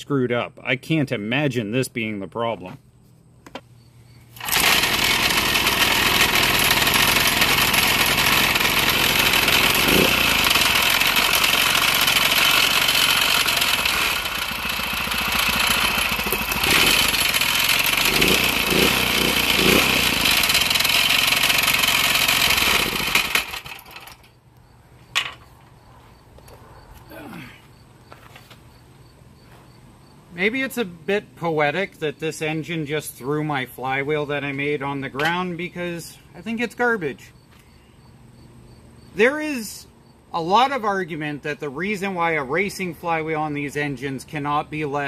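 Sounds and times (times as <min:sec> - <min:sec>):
small engine running: 0:04.4 - 0:24.3.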